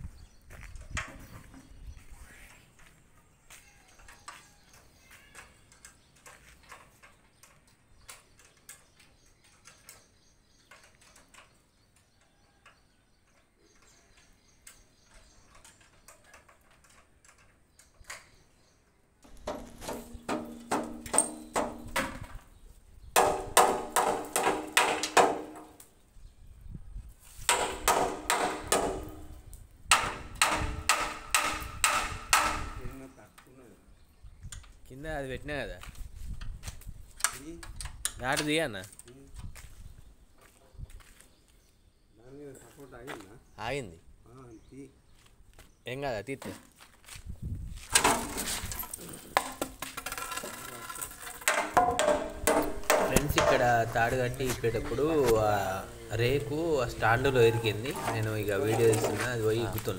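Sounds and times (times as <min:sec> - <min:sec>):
hammer striking steel: 0:51.5 - 0:53.7.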